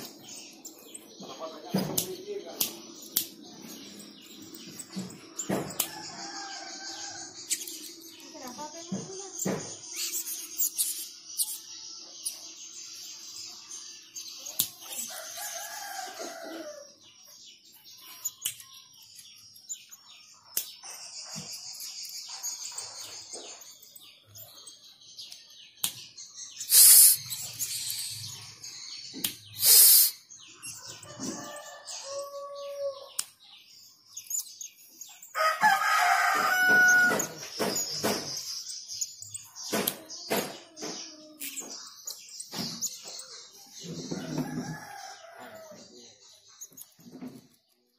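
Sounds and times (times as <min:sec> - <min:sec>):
roosters crowing: 0:03.4 - 0:08.1, 0:14.9 - 0:17.2, 0:30.6 - 0:33.2, 0:35.1 - 0:38.5, 0:43.6 - 0:46.0.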